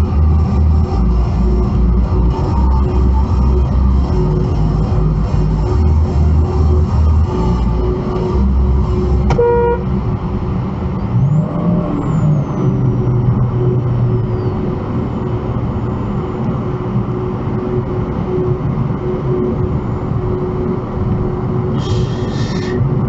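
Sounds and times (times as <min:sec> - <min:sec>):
highway driving road noise: 0:00.0 - 0:23.0
car horn beep: 0:09.3 - 0:10.0.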